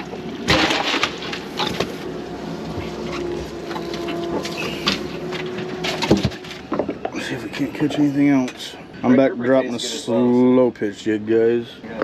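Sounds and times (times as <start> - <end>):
ice and fish rattling: 0.0 - 2.1, 3.0 - 7.4
knocks and clatter of handling: 2.8 - 7.2.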